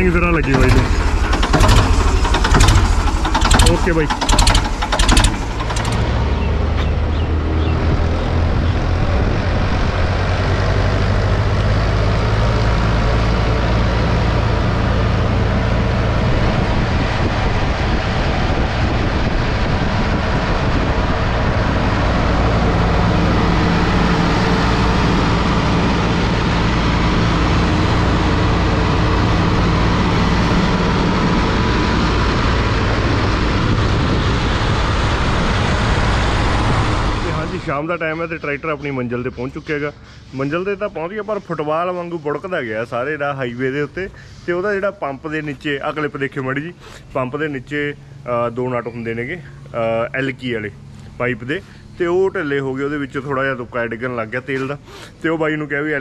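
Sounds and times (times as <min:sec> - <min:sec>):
road and wind noise: 0:00.0 - 0:56.0
tractor diesel engine running: 0:00.0 - 0:56.0.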